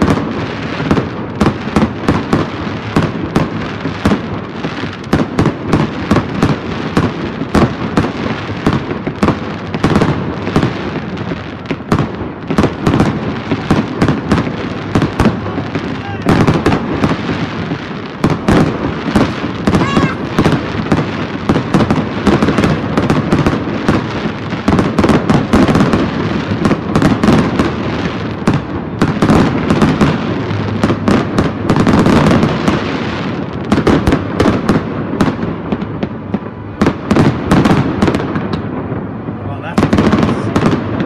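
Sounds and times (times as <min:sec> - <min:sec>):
fireworks bursting: 0:00.0 - 0:41.0.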